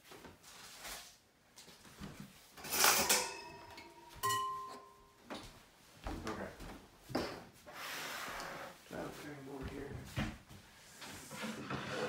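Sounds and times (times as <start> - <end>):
metal kitchenware clattering: 2.6 - 5.1.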